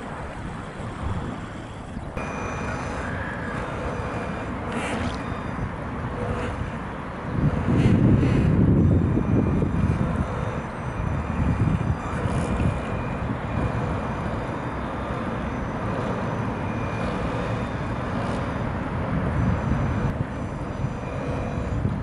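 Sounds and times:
wind rumbling on microphone: 0.0s - 15.2s, 15.9s - 22.0s
faint whine of model boat motors: 0.0s - 22.0s.

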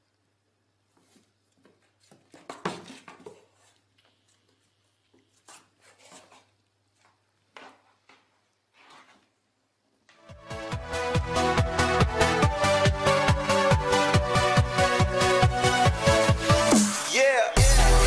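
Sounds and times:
cat claws scraping cardboard: 5.4s - 6.6s.

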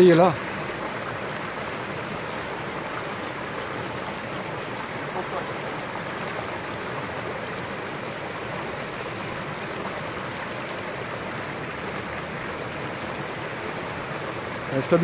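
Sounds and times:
stream running over rocks: 0.0s - 15.0s.

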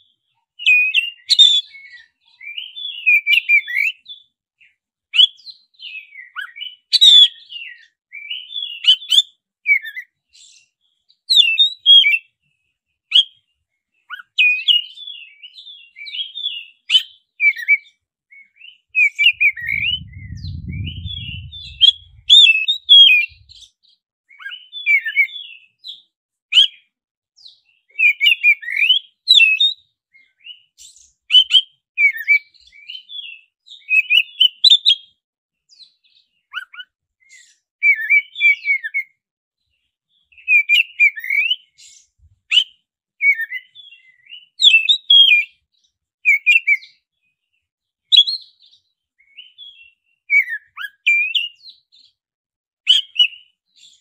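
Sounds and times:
bird singing whistled phrases: 0.6s - 4.2s, 5.1s - 10.6s, 14.1s - 25.6s, 26.5s - 26.9s, 27.9s - 35.0s, 36.5s - 39.1s, 40.4s - 45.6s, 46.3s - 47.0s, 48.1s - 52.1s, 52.9s - 54.0s
faint low rumble: 19.4s - 22.4s.

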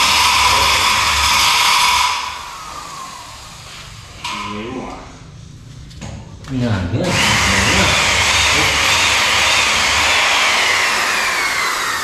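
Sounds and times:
power drill whirring: 0.0s - 3.6s, 7.1s - 12.0s.

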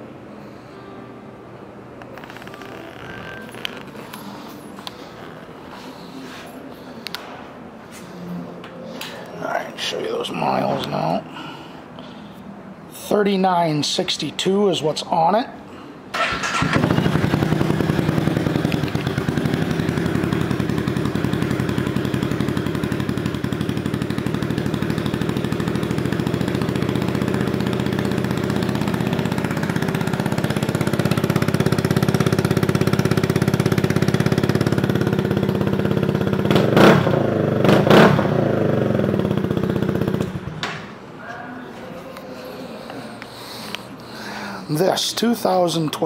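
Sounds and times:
engine revving: 16.2s - 40.4s
motorcycle engine idling: 16.2s - 40.5s.

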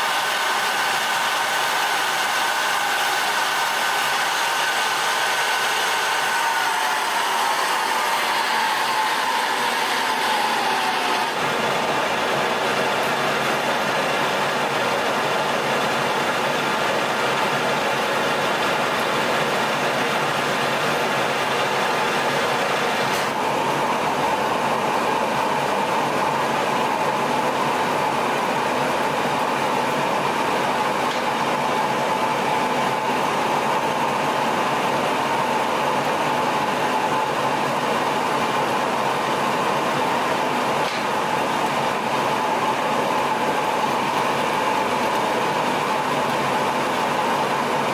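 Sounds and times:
metal lathe cutting threads: 0.0s - 16.1s.

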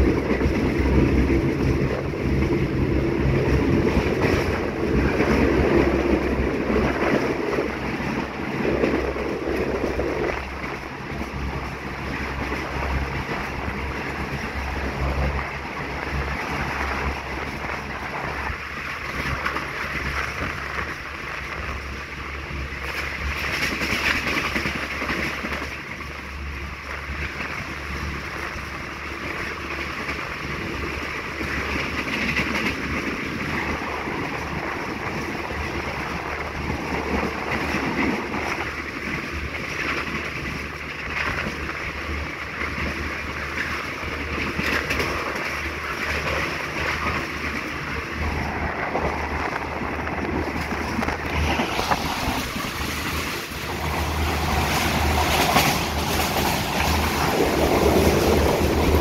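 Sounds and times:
wind rushing: 0.0s - 19.4s, 45.0s - 59.0s
train wheels rumbling on rails: 0.0s - 59.0s.

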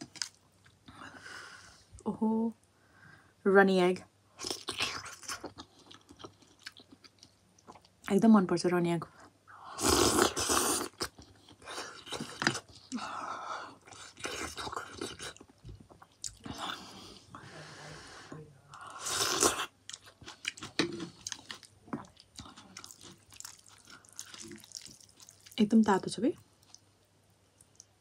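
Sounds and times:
chewing and slurping noodles: 19.0s - 25.6s.

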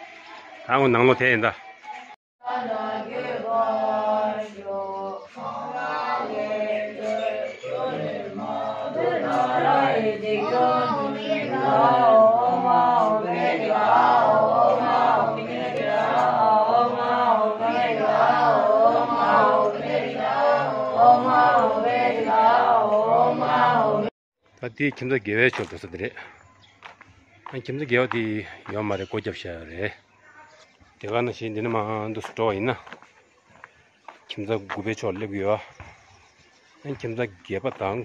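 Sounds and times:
children chanting prayers: 0.0s - 24.1s.

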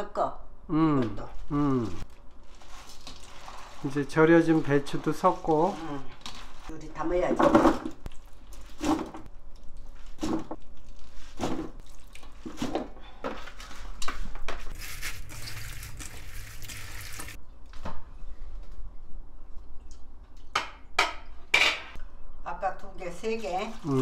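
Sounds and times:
hands squishing wet cabbage: 1.6s - 6.8s, 8.1s - 12.9s, 14.7s - 17.4s, 23.7s - 24.0s.

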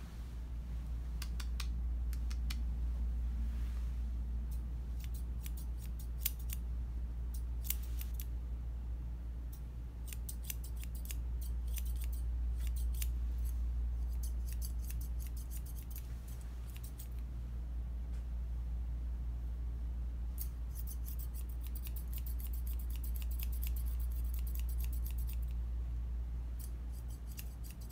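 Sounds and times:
steady low hum: 0.0s - 27.9s
shears snipping: 4.5s - 6.6s, 7.4s - 8.3s, 10.1s - 17.2s, 20.4s - 25.6s.

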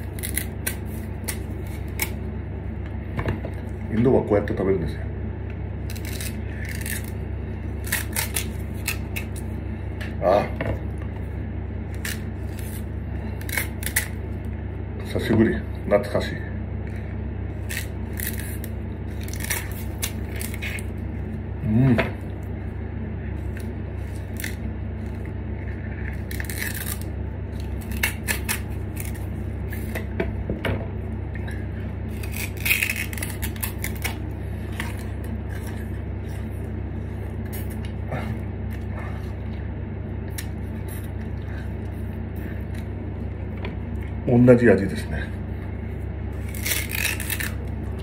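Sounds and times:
person chewing sugarcane: 0.0s - 2.3s, 5.8s - 10.1s, 16.8s - 21.4s, 23.3s - 30.1s, 31.3s - 44.2s
steady low hum: 0.0s - 48.0s.

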